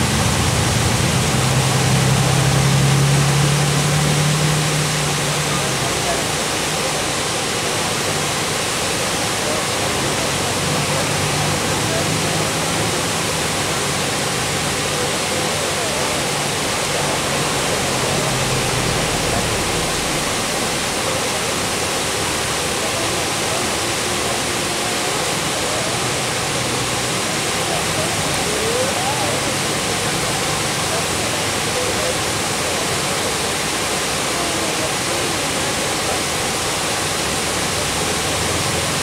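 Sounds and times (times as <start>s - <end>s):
waterfall rushing: 0.0s - 39.0s.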